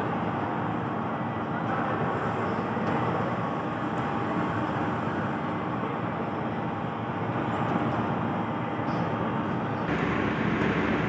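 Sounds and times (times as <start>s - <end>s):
machinery humming: 0.0s - 11.0s.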